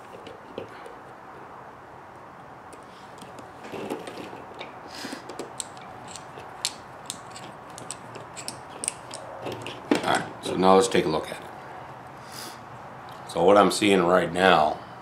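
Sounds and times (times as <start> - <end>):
small metal tool clicks and taps: 5.2 - 9.3.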